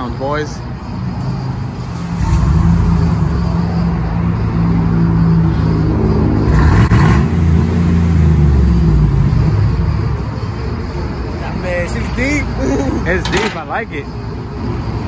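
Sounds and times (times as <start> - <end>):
engine revving: 2.0 - 10.3
truck exhaust rumbling: 2.0 - 14.8.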